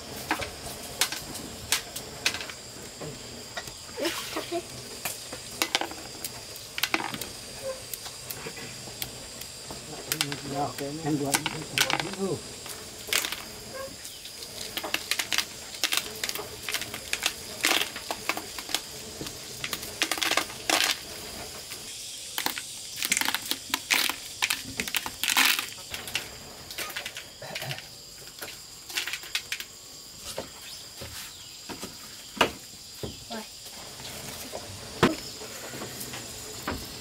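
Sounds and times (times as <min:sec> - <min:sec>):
corn kernels dropping into bucket: 0:03.5 - 0:21.1, 0:22.3 - 0:29.7.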